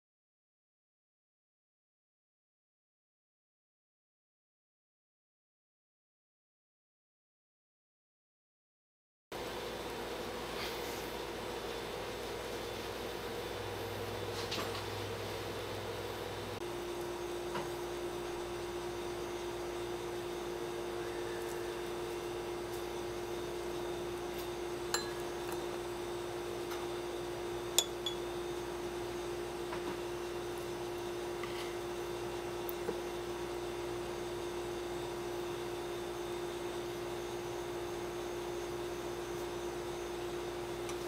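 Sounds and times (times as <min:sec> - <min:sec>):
steady hum: 0:15.0 - 0:41.0
chopsticks clinking on shot glass: 0:25.0 - 0:25.6.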